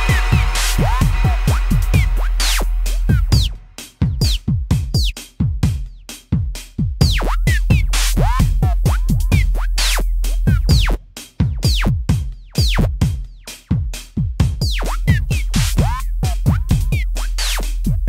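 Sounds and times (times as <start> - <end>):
electronic music: 0.0 - 4.4, 7.0 - 11.0, 14.6 - 18.0.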